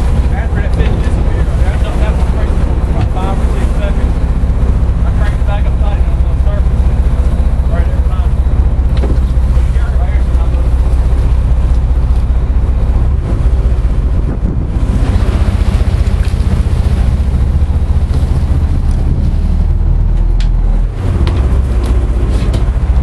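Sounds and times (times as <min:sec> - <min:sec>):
boat engines droning: 0:00.0 - 0:23.0
water rushing past hull: 0:00.0 - 0:23.0
wind buffeting microphone: 0:00.0 - 0:23.0.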